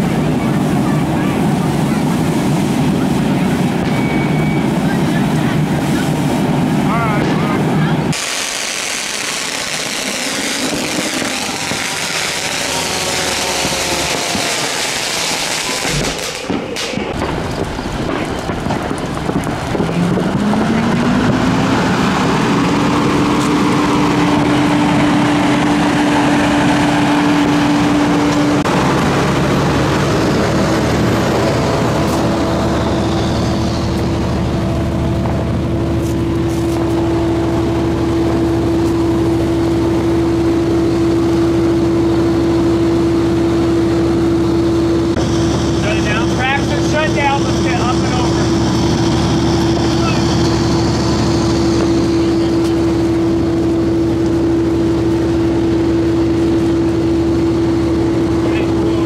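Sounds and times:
firework crackling and hissing: 0.0s - 21.4s, 32.0s - 40.1s
fire engine pump engine running: 0.0s - 59.0s.

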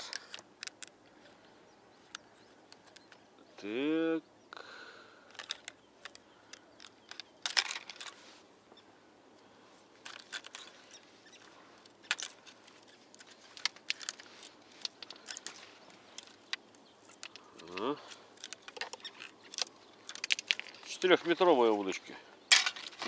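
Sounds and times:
fishing rod clicks and rustles: 0.0s - 1.4s, 2.0s - 3.3s, 5.1s - 8.4s, 9.3s - 23.0s.

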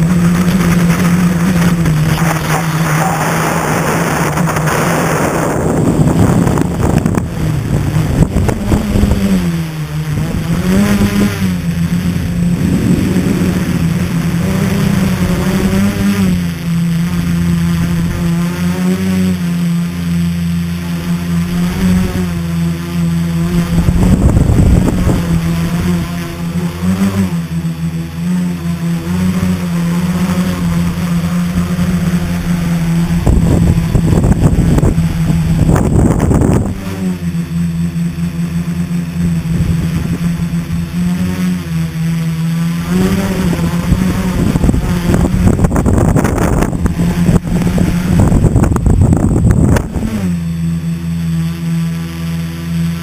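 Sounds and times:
rush of air: 0.0s - 9.2s, 11.0s - 16.2s
drone motors and propellers whining: 0.0s - 53.0s.

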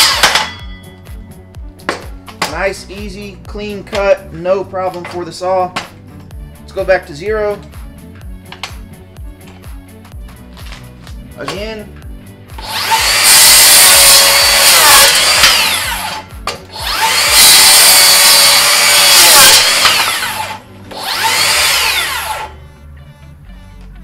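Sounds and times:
circular saw cutting wood: 0.0s - 0.5s, 12.6s - 22.7s.

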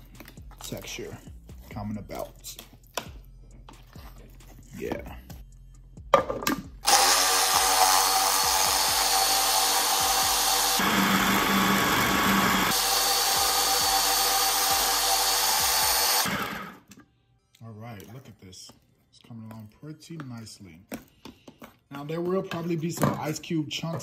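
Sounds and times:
food processor motor running: 6.8s - 16.8s.

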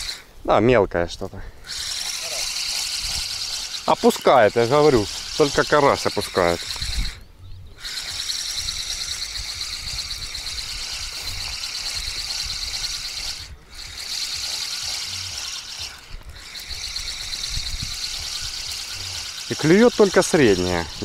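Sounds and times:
fishing reel whirring: 0.0s - 0.3s, 1.6s - 21.0s.

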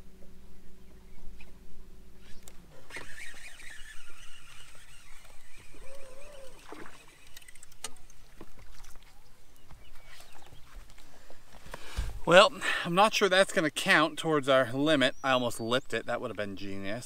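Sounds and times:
low steady hum: 0.0s - 17.0s
fishing reel whirring and clicking: 2.3s - 9.0s
water lapping at boat hull: 3.6s - 9.2s.

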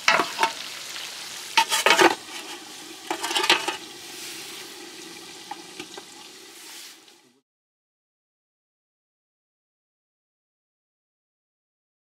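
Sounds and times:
utensil scraping a pan: 0.0s - 7.1s
food sizzling in a pan: 0.0s - 7.4s.

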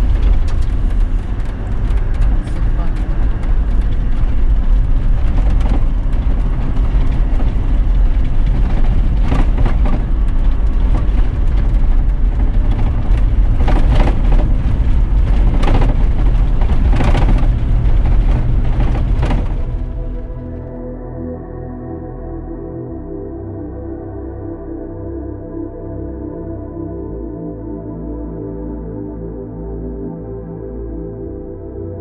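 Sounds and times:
clattering knocks: 0.0s - 20.7s
vehicle engine and tyres rumbling: 0.0s - 22.2s.

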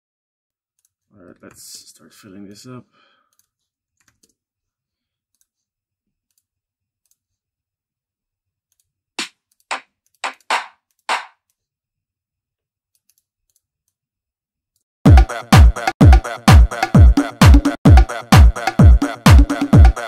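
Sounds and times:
dry clap samples: 9.2s - 11.4s.

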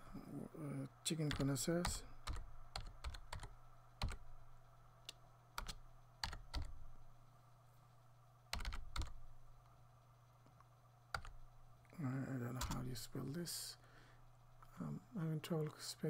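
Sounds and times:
faint low steady hum: 0.0s - 16.0s
keyboard keystrokes: 1.3s - 4.2s, 5.1s - 6.8s, 8.6s - 9.2s, 12.6s - 12.8s.

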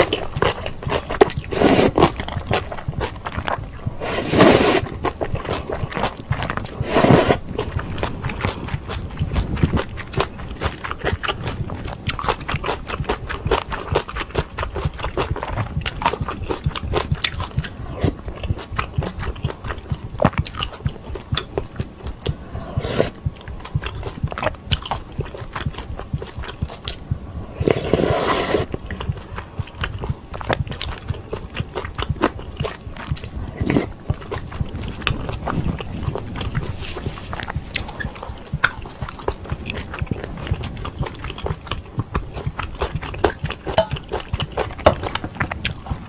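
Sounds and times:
noodle slurp: 0.0s - 7.8s, 27.6s - 30.0s, 32.0s - 34.0s
mouth clicks: 0.0s - 46.0s
wet chewing: 0.0s - 46.0s.

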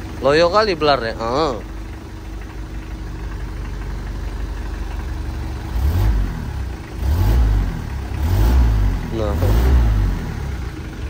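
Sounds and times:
pickup engine idling and revving: 0.0s - 11.0s.

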